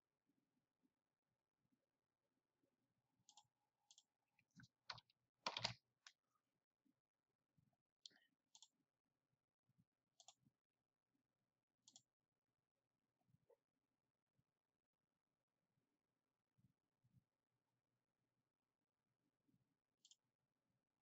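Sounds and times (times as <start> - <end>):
mouse and keyboard clicks: 3.3 - 6.2.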